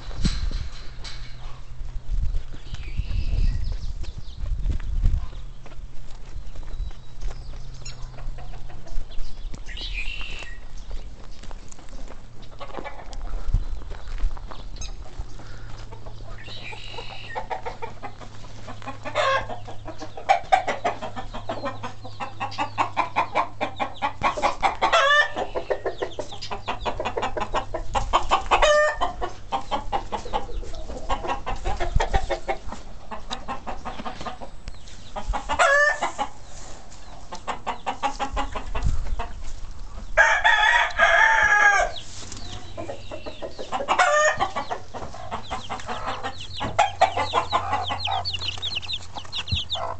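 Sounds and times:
chickens clucking: 0:00.0 - 0:49.9
rooster crowing: 0:40.2 - 0:42.0.

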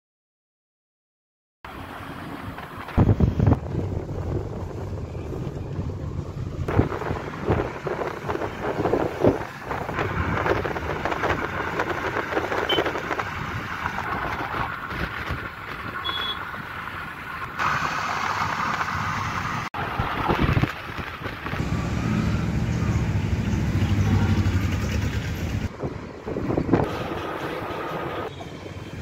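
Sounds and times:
car wind and road noise: 0:01.7 - 0:29.0
short high beep: 0:16.0 - 0:16.4.

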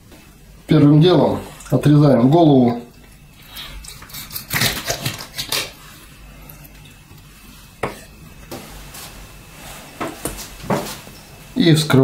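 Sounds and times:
knife crunching through fish: 0:03.9 - 0:05.8.

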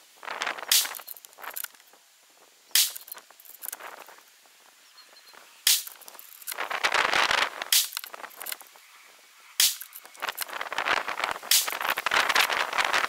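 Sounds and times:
rifle bolt rattling: 0:00.8 - 0:01.8, 0:02.8 - 0:03.8, 0:05.7 - 0:06.6, 0:07.8 - 0:08.6, 0:09.6 - 0:10.5.

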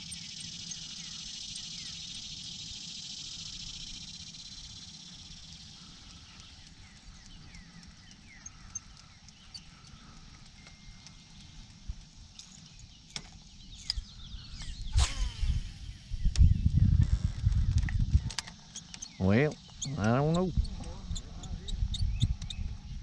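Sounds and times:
cicadas buzzing: 0:00.0 - 0:23.0
light clicks: 0:05.7 - 0:14.8.

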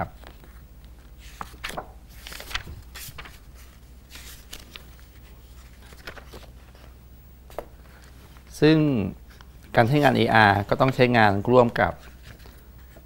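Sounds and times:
paper pages being flipped: 0:00.2 - 0:06.9, 0:12.0 - 0:13.0.

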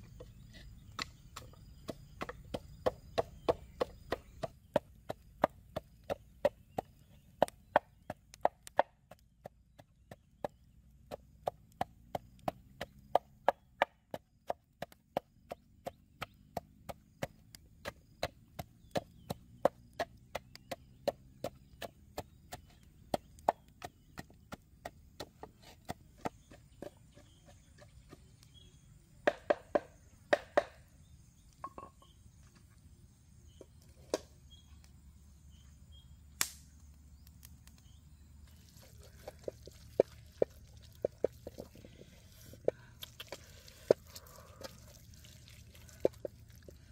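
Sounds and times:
wooden pestle pounding in mortar: 0:00.9 - 0:28.3.

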